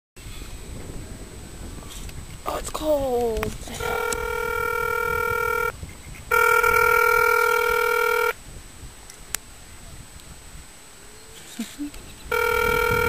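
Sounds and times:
phone ringing tone: 0:03.8 - 0:05.7, 0:06.3 - 0:08.4, 0:12.3 - 0:13.0.

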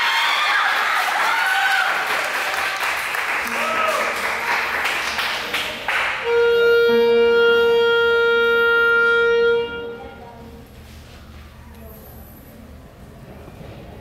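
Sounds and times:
applause: 0:00.0 - 0:06.2
clarinet long note: 0:06.2 - 0:10.6.

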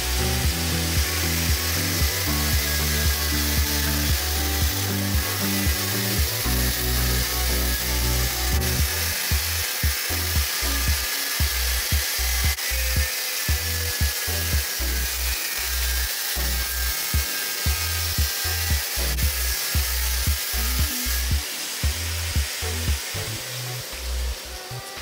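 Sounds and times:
angle grinder cutting metal: 0:00.0 - 0:25.0
background music with steady beat: 0:00.0 - 0:25.0.

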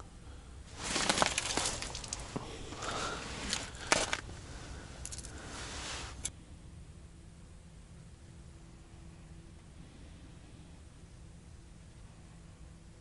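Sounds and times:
rustling and scraping: 0:00.7 - 0:06.3.

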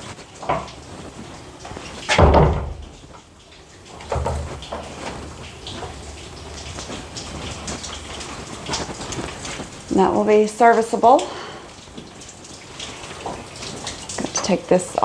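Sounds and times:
door thud: 0:02.1 - 0:02.8
light knocks of door: 0:02.1 - 0:02.8
wooden door knocking shut: 0:02.1 - 0:02.8.

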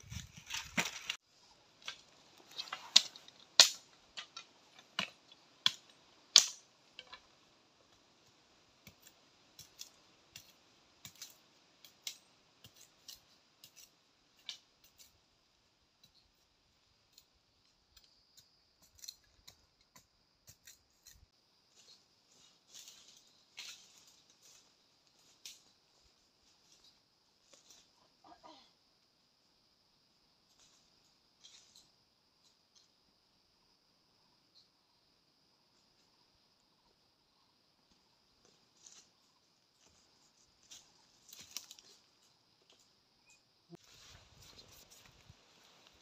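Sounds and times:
sticks snapping: 0:01.8 - 0:07.2.

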